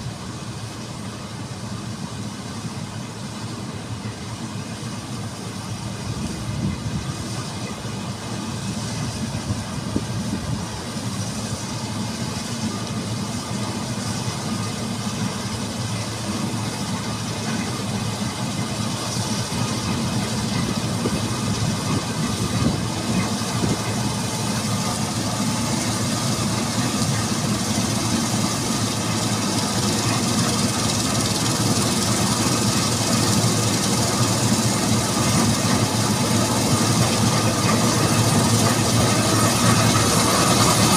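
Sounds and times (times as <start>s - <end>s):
combine harvester machinery drone: 0.0s - 40.9s.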